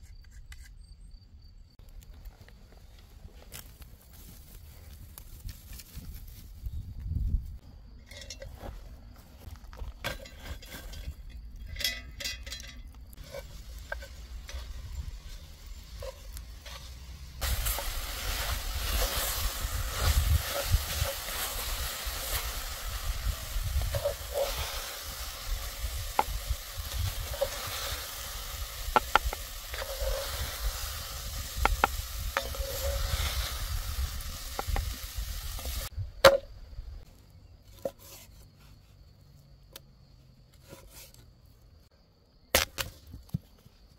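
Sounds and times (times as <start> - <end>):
meat sizzling over embers: 13.1 - 35.9.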